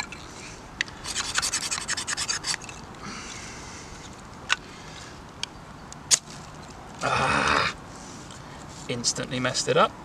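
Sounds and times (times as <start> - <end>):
ferro rod rasping strokes: 1.0 - 2.8.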